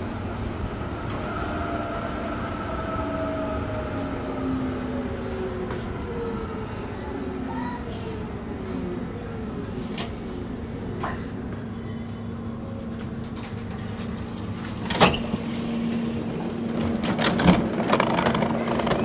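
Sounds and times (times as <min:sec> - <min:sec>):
tram electrical hum: 0:00.0 - 0:19.0
clicks and clatter: 0:16.8 - 0:19.0.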